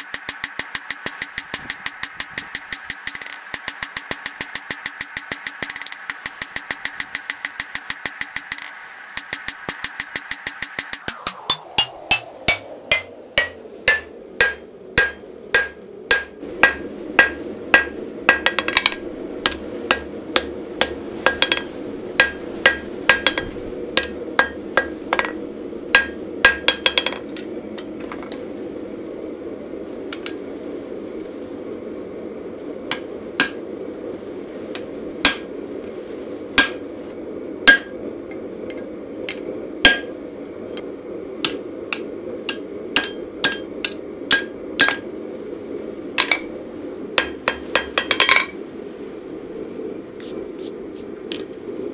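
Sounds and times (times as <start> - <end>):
hammer ringing on anvil: 0.0 - 17.9
steady low hum: 0.0 - 51.9.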